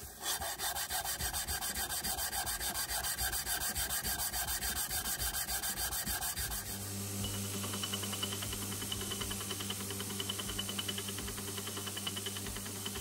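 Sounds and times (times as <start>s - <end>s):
metal scraping on sandpaper: 0.0s - 6.8s.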